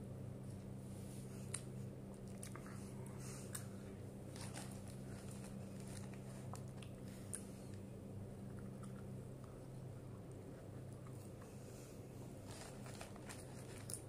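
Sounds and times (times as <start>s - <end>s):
steady low hum: 0.0s - 14.0s
person chewing food: 1.4s - 3.7s, 8.4s - 11.6s.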